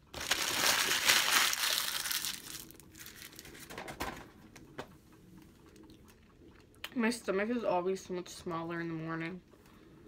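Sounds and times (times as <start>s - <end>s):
paper wrapper crumpling: 0.0s - 3.8s.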